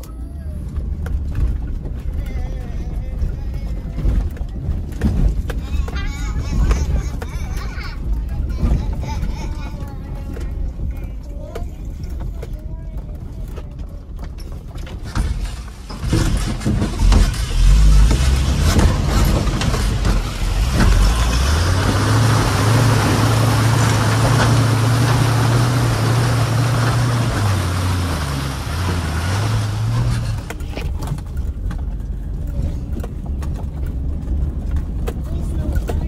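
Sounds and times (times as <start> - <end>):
truck engine pulling hard: 0.0 - 36.0
water splashing off wheels: 15.0 - 32.5.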